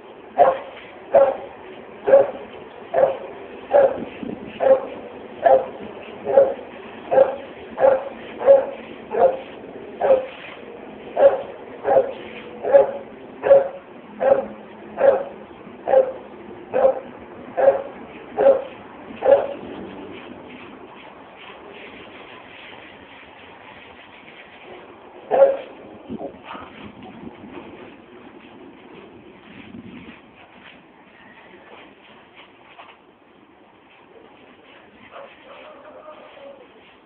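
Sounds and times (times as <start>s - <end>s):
dog barking: 0.4s - 1.5s, 2.1s - 4.0s, 4.6s - 10.3s, 11.2s - 19.6s, 25.3s - 25.7s.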